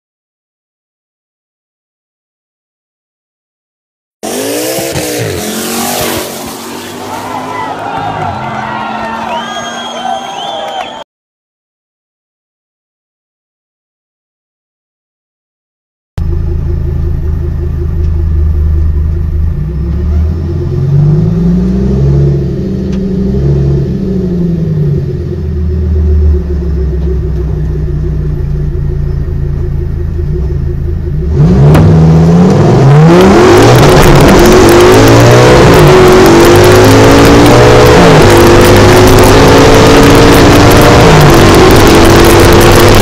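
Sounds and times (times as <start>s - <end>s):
car engine revving in cabin: 4.2s - 8.4s, 16.2s - 43.0s.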